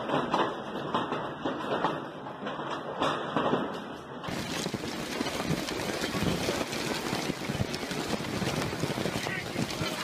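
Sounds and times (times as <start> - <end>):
hail clattering: 4.2 - 10.0
storm noise rushing: 4.2 - 10.0.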